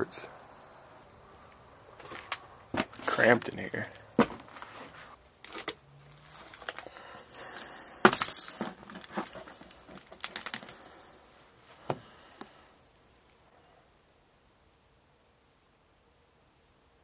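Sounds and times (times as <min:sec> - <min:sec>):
knocks and scrapes in debris: 0:08.1 - 0:10.8.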